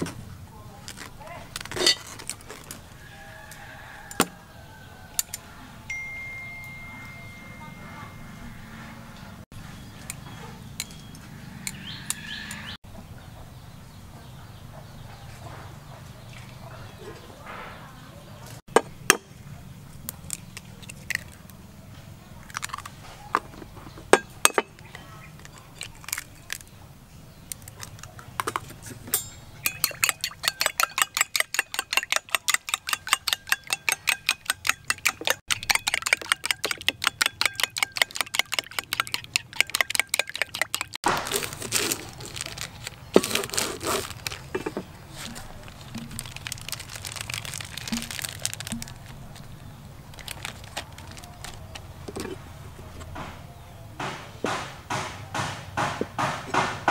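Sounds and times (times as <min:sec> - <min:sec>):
plastic wrapper crinkling: 0:00.8 - 0:02.8, 0:41.0 - 0:52.4
spoon clinking against bowl: 0:05.9 - 0:08.2, 0:29.1 - 0:41.0
sharp clicks and knocks: 0:27.6 - 0:41.4.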